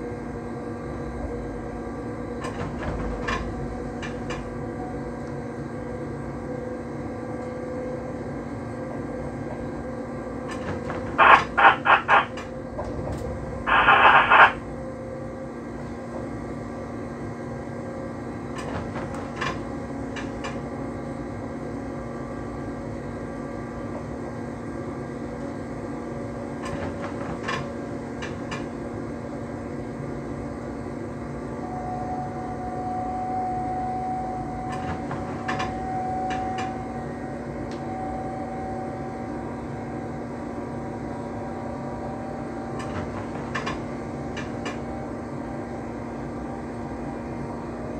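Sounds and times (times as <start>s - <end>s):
electric train drone: 0.0s - 47.9s
high whine: 11.1s - 15.0s.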